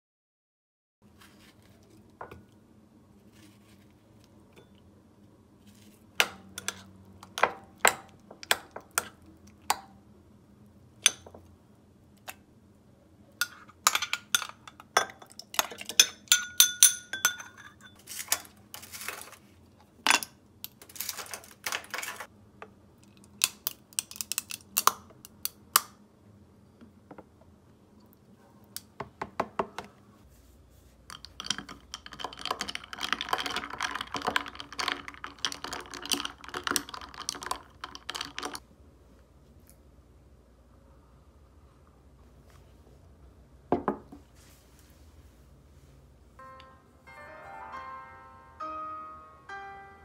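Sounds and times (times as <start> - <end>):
faint steady hum: 1.0 - 50.0
dishes and cutlery clinking: 13.4 - 19.3.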